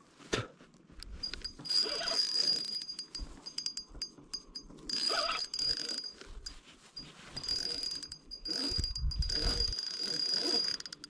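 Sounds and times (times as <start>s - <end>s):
fishing reel buzzing and clicking: 1.2s - 6.3s, 7.4s - 11.0s.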